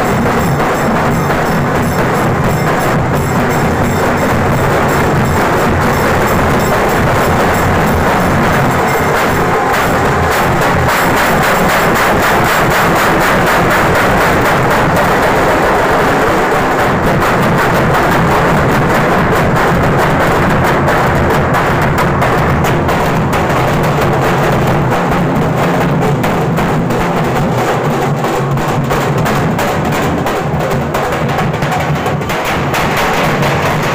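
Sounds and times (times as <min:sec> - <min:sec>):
fast loud drumming: 0:00.0 - 0:33.9.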